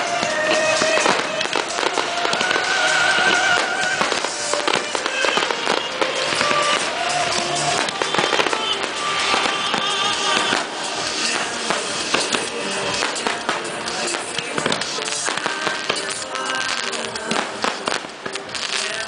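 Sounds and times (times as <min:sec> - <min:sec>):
fireworks bursting and crackling: 0:00.0 - 0:19.0
music playing: 0:00.0 - 0:19.0.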